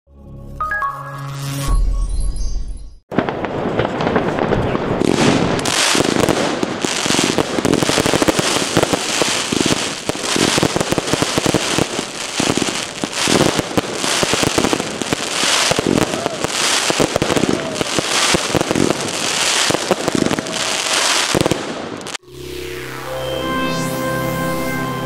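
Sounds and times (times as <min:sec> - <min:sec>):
fireworks shots and crackling: 0:03.1 - 0:22.2.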